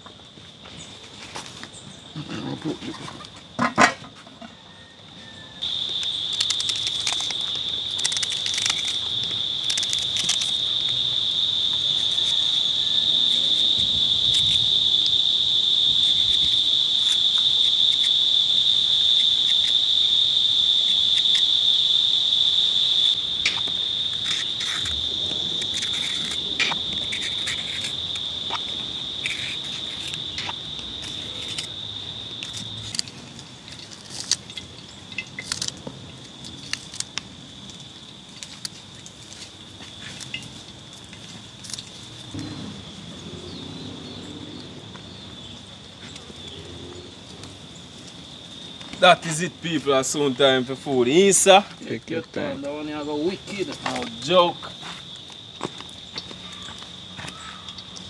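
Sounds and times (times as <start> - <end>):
insect singing high note: 10.4 - 30.6.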